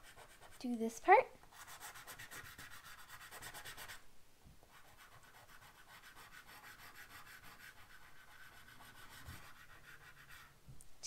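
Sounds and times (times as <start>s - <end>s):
pastel stick rubbing on paper: 0.0s - 0.8s, 1.5s - 4.0s, 4.7s - 10.5s.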